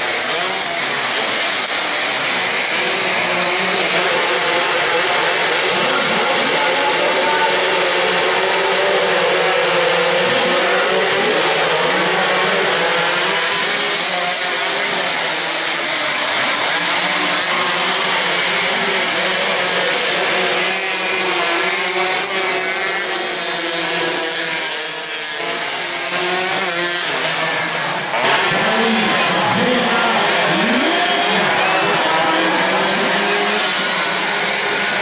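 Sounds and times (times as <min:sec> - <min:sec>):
racing motorcycles at high revs: 0:00.0 - 0:35.0.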